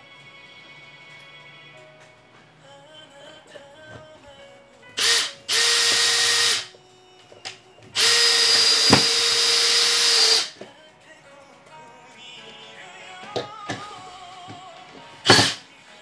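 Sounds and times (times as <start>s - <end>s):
power drill running: 5.0s - 6.7s, 8.0s - 10.6s, 15.2s - 15.6s.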